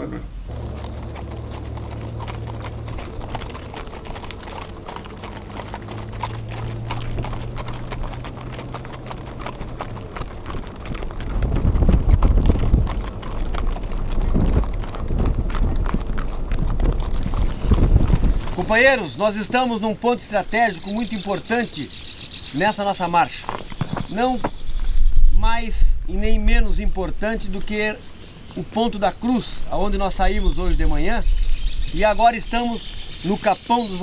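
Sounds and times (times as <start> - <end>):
low rumble: 0.3 - 19.0
horse hooves clip-clopping on asphalt: 0.5 - 25.1, 27.0 - 34.0.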